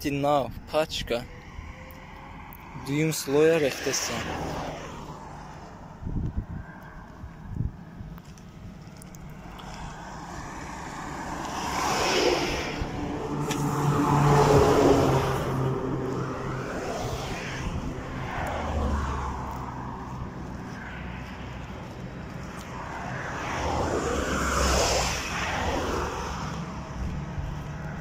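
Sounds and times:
vehicles passing: 0.0 - 28.0
heavy truck passing: 8.5 - 28.0.

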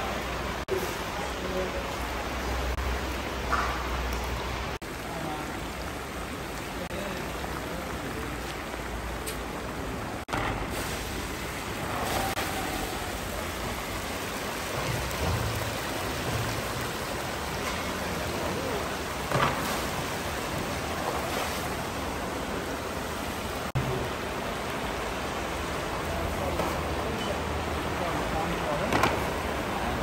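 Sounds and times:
meat sizzling and bubbling: 2.8 - 24.3.

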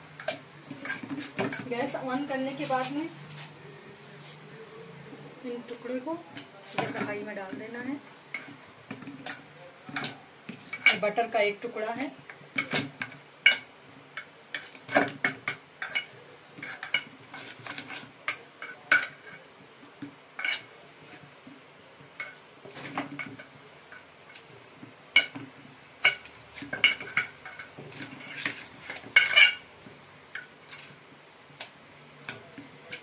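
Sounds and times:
utensils and dishes clinking: 26.0 - 29.6.

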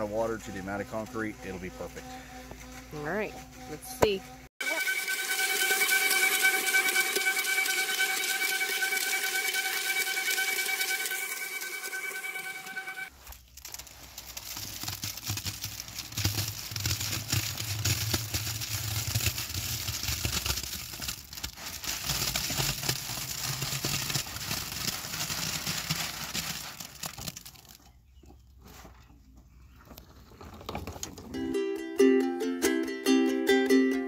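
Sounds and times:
wheelbarrow rolling over rocky dirt: 13.1 - 29.0.

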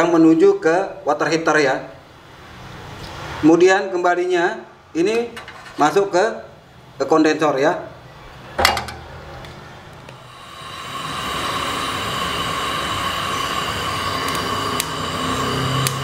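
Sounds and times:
hissing rush of torch flame: 9.9 - 16.0
torch ignition click: 12.2 - 16.0.

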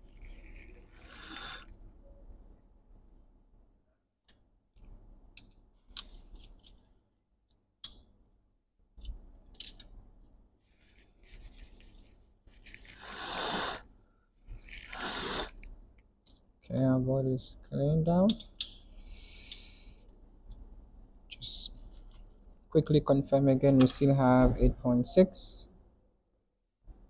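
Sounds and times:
rustling and scraping: 10.6 - 13.1, 14.4 - 15.7.

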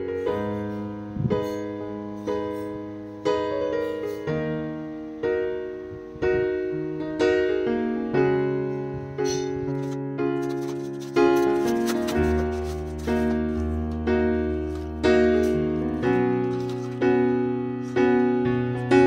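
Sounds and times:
electric piano chords: 0.0 - 19.0.

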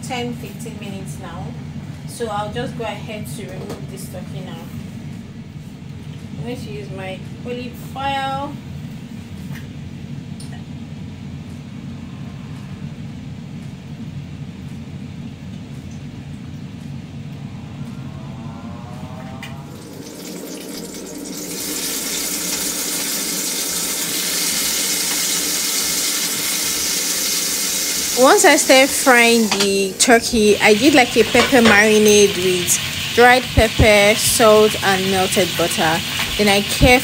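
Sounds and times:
low steady hum: 0.0 - 37.0
meat sizzling in hot oil: 19.8 - 29.6, 30.2 - 37.0.

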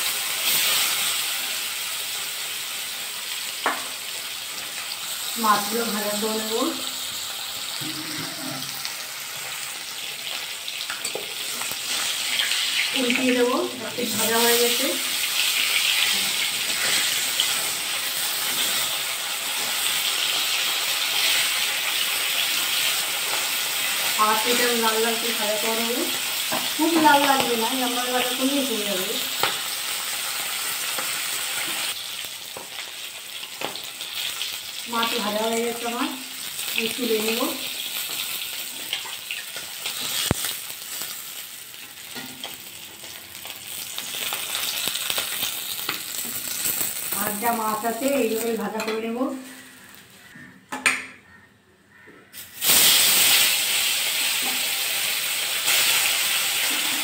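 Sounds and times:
fish sizzling in oil: 0.0 - 50.3, 52.4 - 57.0.

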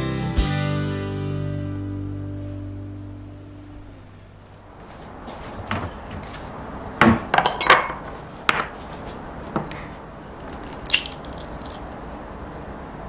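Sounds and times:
glass bowls clinking on counter: 5.7 - 6.3, 7.0 - 8.7
egg cracking: 10.4 - 12.6.

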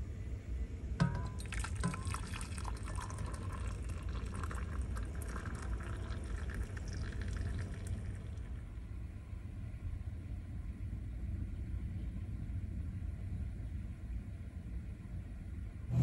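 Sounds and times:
low steady hum: 0.0 - 16.0
metal kettle clinks: 1.0 - 2.4
water pouring into a mug: 1.0 - 8.6.

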